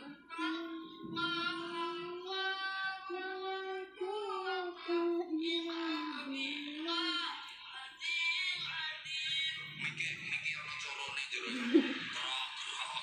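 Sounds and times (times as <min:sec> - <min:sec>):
child singing devotional chant: 0:00.0 - 0:09.6.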